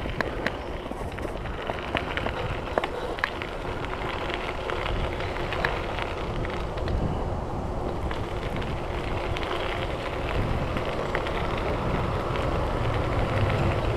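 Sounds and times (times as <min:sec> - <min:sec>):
stones crackling and clicking: 0:00.0 - 0:07.0, 0:07.8 - 0:13.9
bike tyres rolling on gravel: 0:00.0 - 0:13.9.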